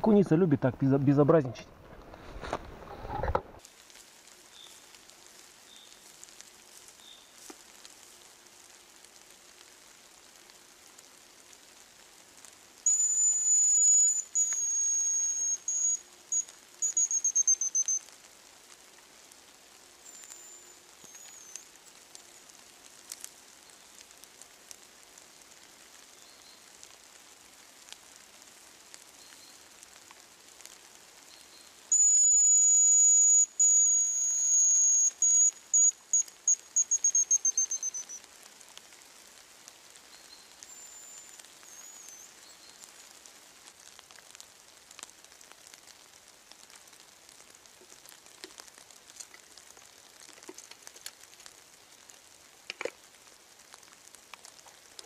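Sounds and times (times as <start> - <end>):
light rain pattering: 0.0 - 55.0
grouse whistling song: 12.8 - 18.0, 20.1 - 21.7, 31.5 - 38.2, 40.2 - 42.9.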